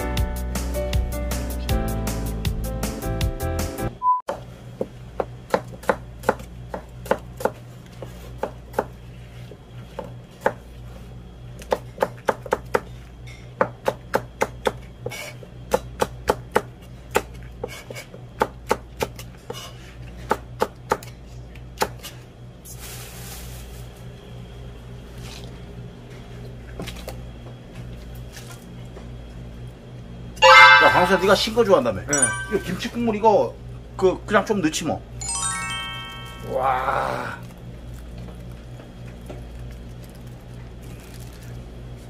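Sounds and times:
knife chopping on plastic board: 5.2 - 9.0, 15.7 - 19.2
plastic bag rustling: 22.7 - 24.1, 39.9 - 42.0.

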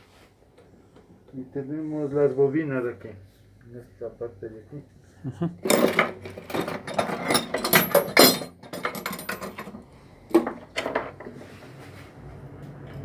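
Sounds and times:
knocks and clatters on workbench: 5.6 - 11.5.

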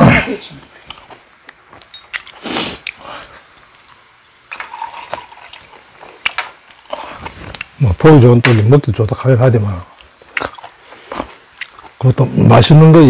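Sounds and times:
glass clink: 4.5 - 5.4
liquid pouring into glass: 4.5 - 5.8.

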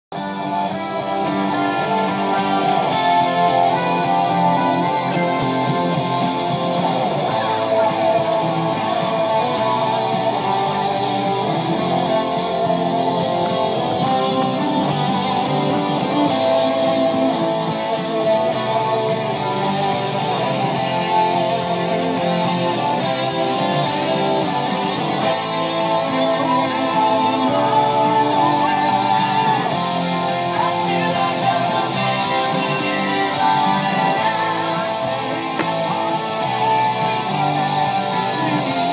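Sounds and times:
guitar background music: 0.1 - 38.9.

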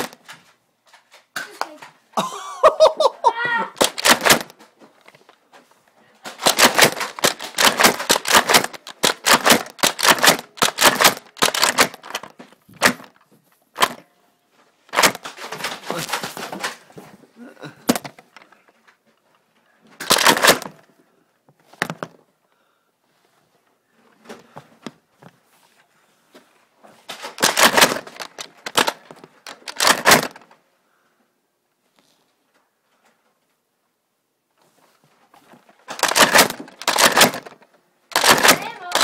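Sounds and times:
toy dart blaster shots: 3.8 - 4.5, 6.4 - 13.1, 27.4 - 29.0, 36.0 - 39.0.

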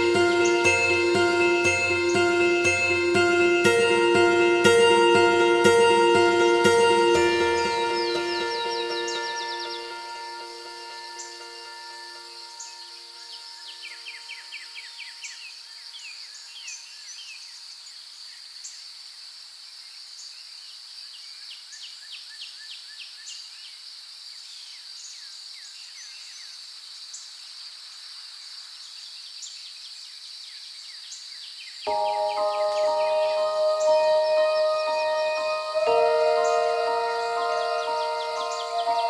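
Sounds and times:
music notes: 0.0 - 14.5, 31.9 - 39.0
bird chirps: 6.9 - 15.5, 31.9 - 39.0.

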